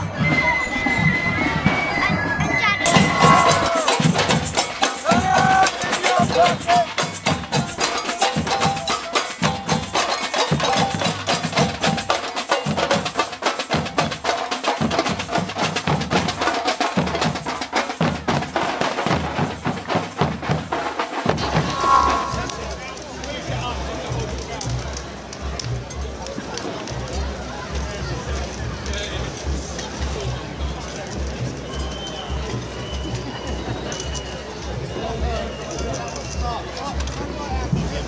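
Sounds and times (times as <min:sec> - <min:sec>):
marching drum band: 0:02.9 - 0:21.4.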